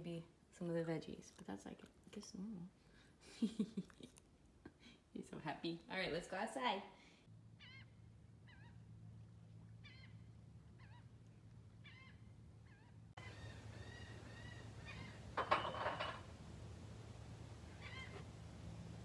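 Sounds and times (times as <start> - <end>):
birds chirping: 9.6 - 16.1, 17.6 - 18.3.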